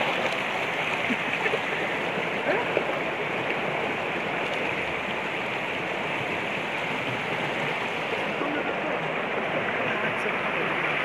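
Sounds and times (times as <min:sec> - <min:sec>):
stream rushing over rocks: 0:00.0 - 0:11.0.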